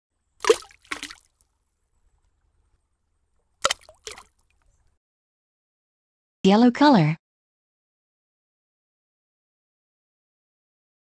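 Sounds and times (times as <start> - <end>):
cartoon liquid splash: 0.4 - 1.3, 3.6 - 4.4.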